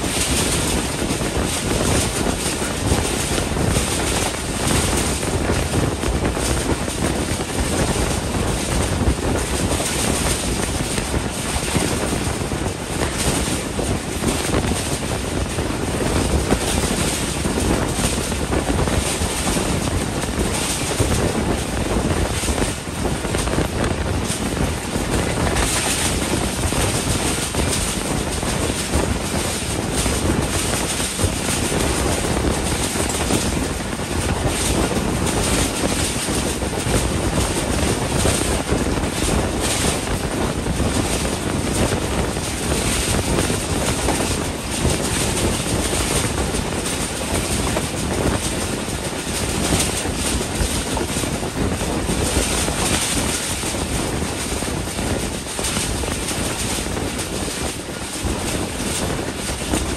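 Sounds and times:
train running at speed: 0.0s - 59.9s
wind buffeting microphone: 0.0s - 59.9s
wind rushing: 0.0s - 59.9s.

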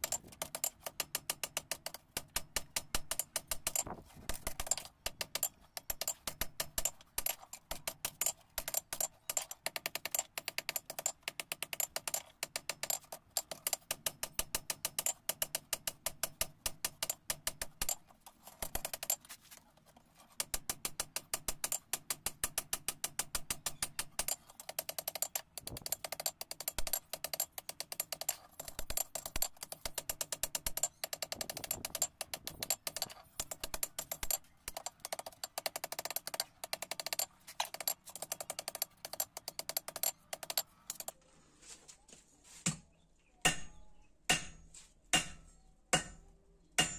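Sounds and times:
hammer striking hot steel on anvil: 43.4s - 46.9s.

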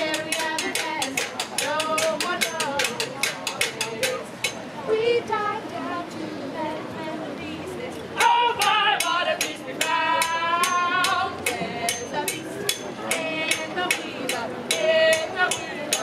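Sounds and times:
person singing with vibrato: 0.0s - 4.2s, 4.9s - 16.0s
percussive clicking beat: 0.0s - 4.6s, 8.2s - 16.0s.

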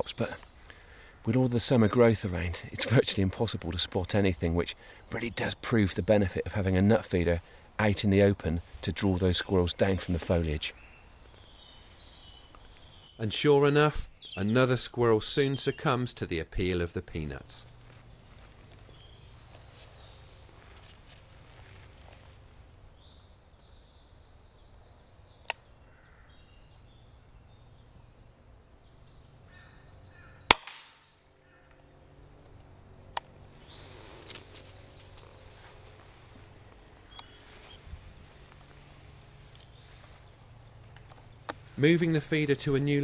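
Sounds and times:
birds calling: 0.0s - 43.0s
air rifle firing crack: 30.5s - 31.1s
faint clicks: 36.7s - 37.4s.

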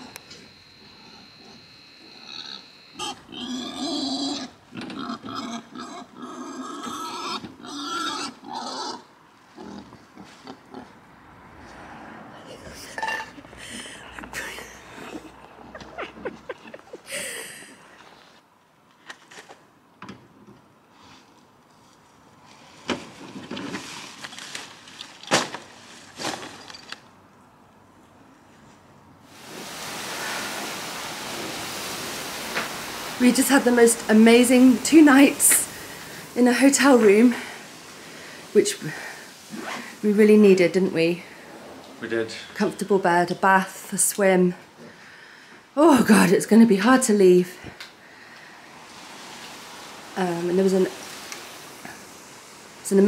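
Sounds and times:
wild boar squealing and grunting: 0.8s - 10.9s
plastic bags rustling: 22.4s - 27.2s, 29.4s - 41.5s, 48.3s - 52.9s.

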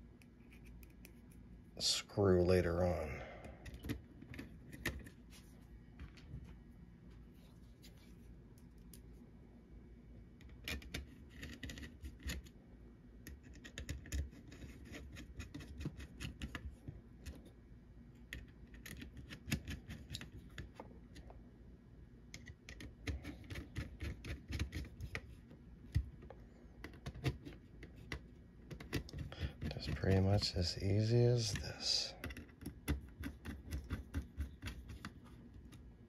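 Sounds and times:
screwdriver clicking and scraping: 10.4s - 12.5s, 13.2s - 17.4s, 22.4s - 26.2s, 26.8s - 35.9s.

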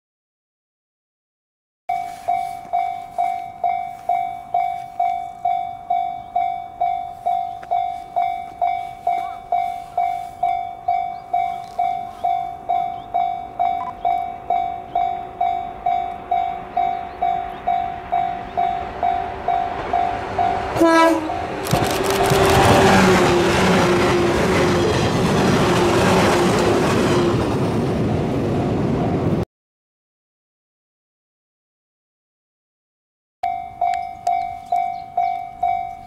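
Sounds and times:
level crossing bell dinging: 1.9s - 20.6s, 33.4s - 36.0s
faint train rumble: 1.9s - 29.4s.

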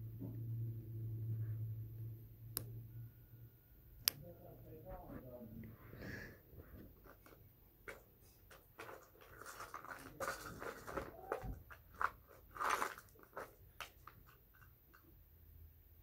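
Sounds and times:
rummaging rustle: 6.8s - 14.4s
plastic jewelry clicking and rattling: 7.0s - 15.1s.

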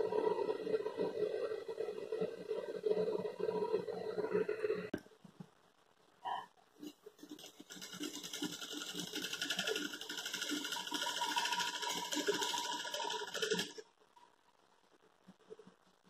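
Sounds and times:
sewing machine stitching: 7.1s - 13.8s.

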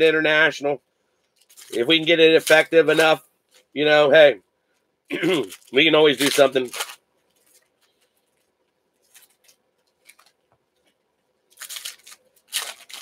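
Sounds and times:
card pack wrapper crinkling: 1.4s - 3.7s, 5.3s - 10.5s, 11.5s - 13.0s
cards being handled: 5.4s - 11.0s, 11.6s - 13.0s.

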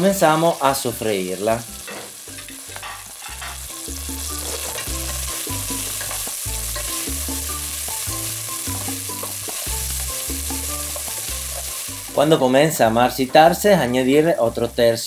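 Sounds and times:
vegetables sizzling in oil: 0.0s - 13.6s
background music with bass: 0.8s - 15.0s
wooden spoon stirring: 2.1s - 12.3s.

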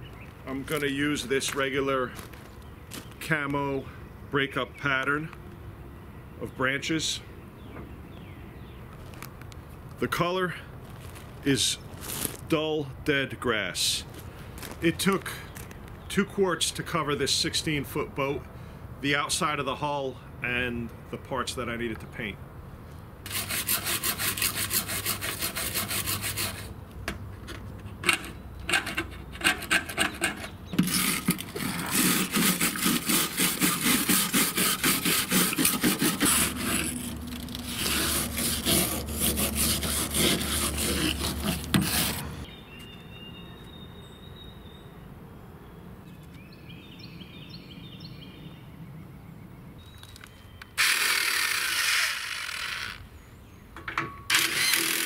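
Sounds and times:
scrubbing aluminum boat hull: 23.3s - 26.7s, 28.0s - 42.5s
cordless power drill running: 50.8s - 53.0s, 54.3s - 55.0s.

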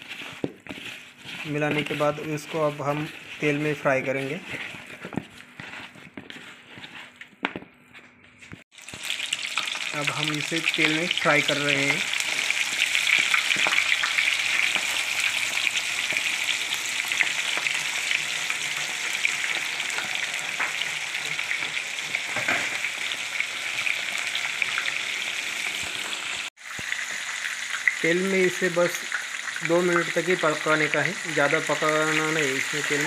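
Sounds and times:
chicken deep-frying in oil: 8.7s - 33.0s.

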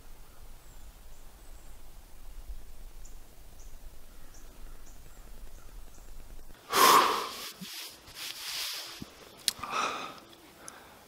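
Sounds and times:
faint woodland background: 0.0s - 11.0s
man breathing softly: 9.6s - 11.0s.

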